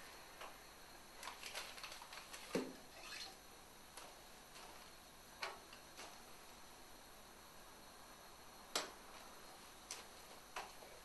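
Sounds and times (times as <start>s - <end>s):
paper crinkling: 1.2s - 2.7s.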